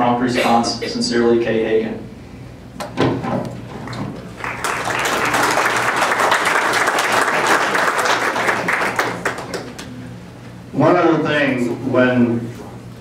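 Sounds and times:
audience clapping: 3.8s - 10.0s.

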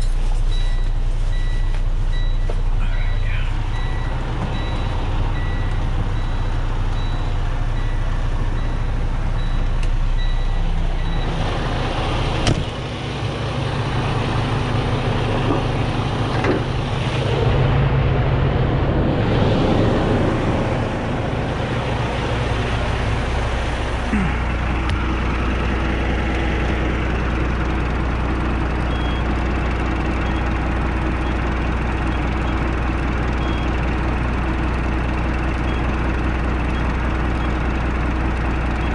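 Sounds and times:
diesel truck engine idling: 0.0s - 38.9s
short beeps: 0.5s - 11.4s.

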